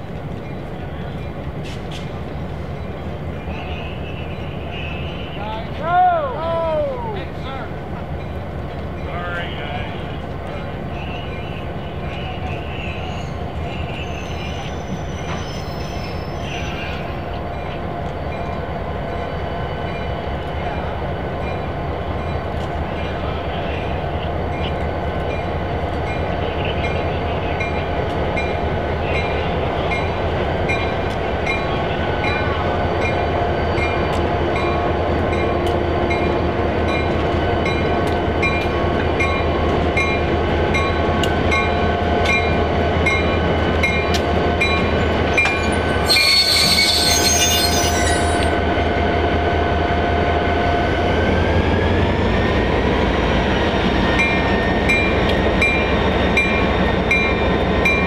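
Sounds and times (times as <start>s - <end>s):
train engine drone: 0.0s - 58.0s
high wheel squeal: 12.5s - 17.2s, 45.3s - 48.6s.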